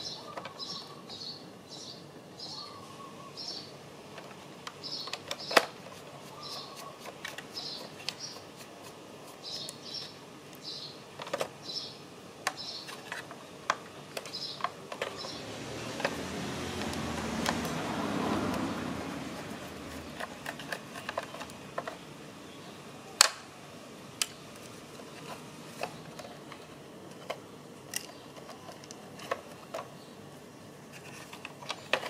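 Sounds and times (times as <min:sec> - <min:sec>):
small bird chirping: 0:00.0 - 0:03.8, 0:04.8 - 0:11.0, 0:11.6 - 0:13.2, 0:14.1 - 0:16.2
plastic parts clicking: 0:04.1 - 0:06.0, 0:11.2 - 0:11.6, 0:12.4 - 0:15.4, 0:19.9 - 0:22.0, 0:24.2 - 0:30.0, 0:31.0 - 0:32.0.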